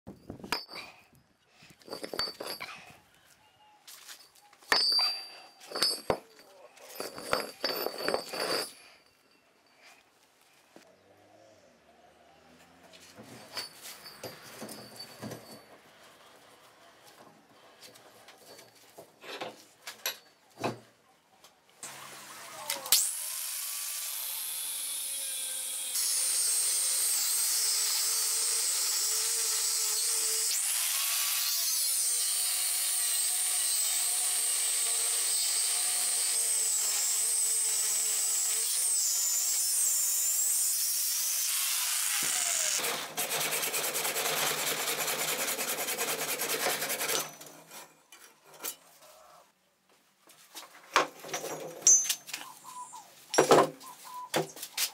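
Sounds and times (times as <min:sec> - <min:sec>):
angle grinder cutting steel: 0:21.8 - 0:48.0.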